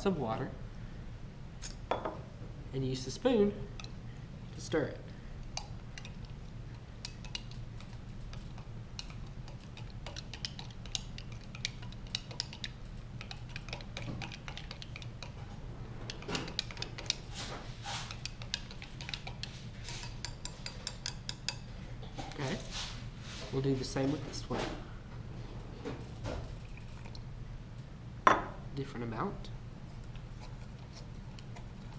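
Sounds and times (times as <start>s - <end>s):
plastic spoon stirring in glass: 7.0s - 21.6s.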